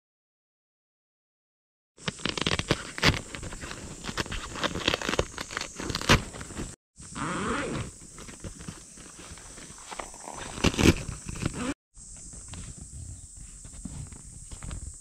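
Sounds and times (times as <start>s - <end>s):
tent zipper pulled open: 2.0s - 11.8s
tent fabric rustling and crinkling: 2.0s - 15.0s.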